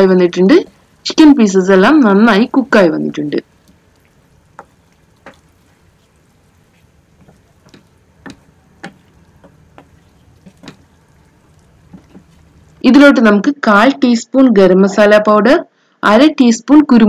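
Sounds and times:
spatula scraping a pan: 3.4s - 12.8s.

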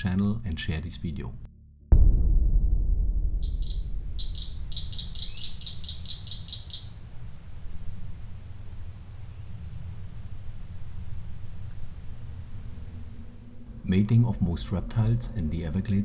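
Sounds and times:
low rumble: 1.3s - 8.1s, 10.4s - 16.0s
rapid trill of high chirps: 3.4s - 7.0s
high insect drone: 3.4s - 16.0s.

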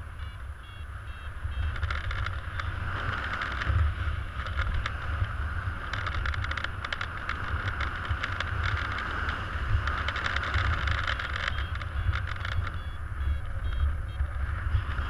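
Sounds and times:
wind rumble with hiss: 0.0s - 15.0s
rapid fine clicking: 1.6s - 13.0s.

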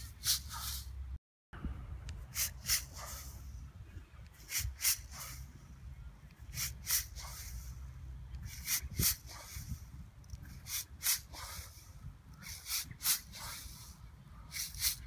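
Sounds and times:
short sharp hisses: 0.1s - 1.0s, 2.3s - 3.5s, 4.4s - 5.5s, 6.5s - 7.8s, 10.6s - 15.0s
wind rumble on microphone: 1.6s - 4.8s, 7.7s - 15.0s.

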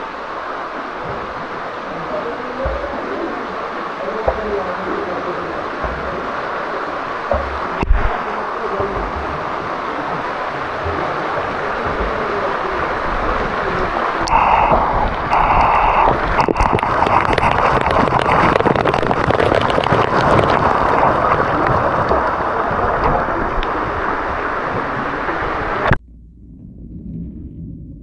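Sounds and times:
rushing splashing water: 0.0s - 26.0s.

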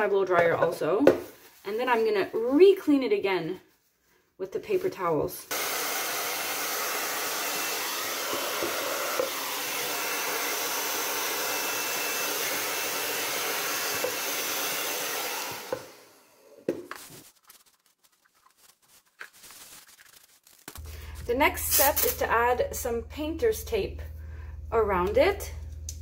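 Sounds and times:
hair dryer blowing: 5.5s - 16.7s.

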